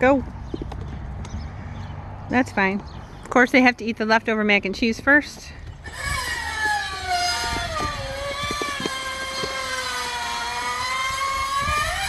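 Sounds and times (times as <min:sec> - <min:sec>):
engine whining: 0:05.7 - 0:12.0.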